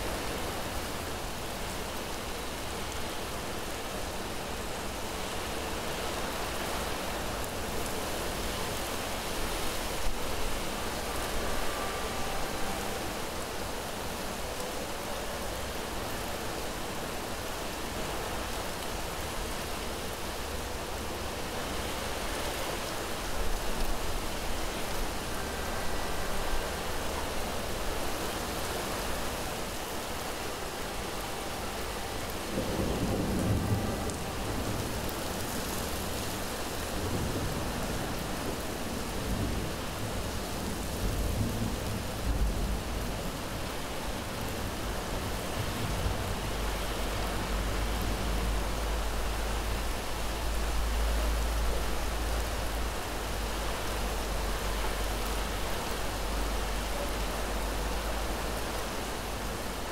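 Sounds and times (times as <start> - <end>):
steady rain falling: 0.0 - 59.9
low rolling thunder: 32.2 - 36.2, 36.8 - 49.7.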